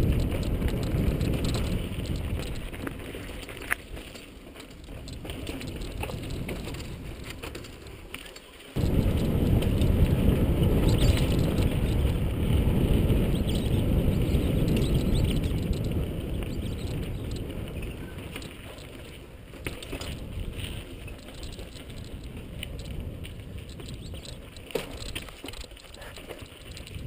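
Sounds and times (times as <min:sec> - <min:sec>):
wind buffeting on microphone: 0:00.0 - 0:08.0, 0:08.8 - 0:27.0
bike tyre and frame rattle: 0:00.0 - 0:27.0.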